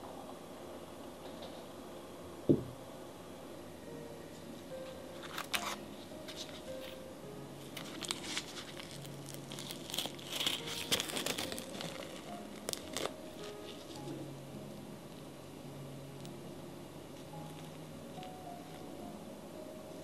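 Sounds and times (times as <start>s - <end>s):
crinkling and rustling: 7.6s - 14.2s.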